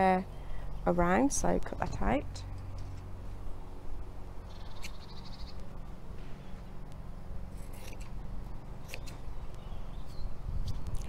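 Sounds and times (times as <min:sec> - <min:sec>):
wind rumble on microphone: 0:01.0 - 0:02.5, 0:09.3 - 0:11.0.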